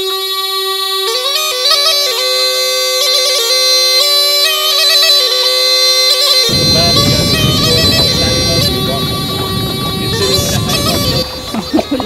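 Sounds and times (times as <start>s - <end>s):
bagpipe-like reed melody with drone: 0.0s - 11.8s
low rumbling noise: 6.5s - 12.0s.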